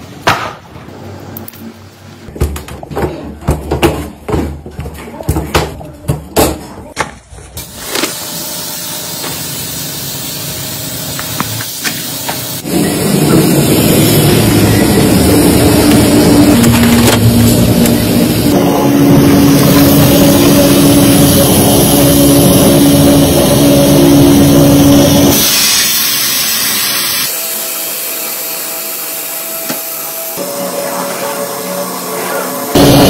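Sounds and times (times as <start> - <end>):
industrial mixing machine running: 12.4 - 33.0.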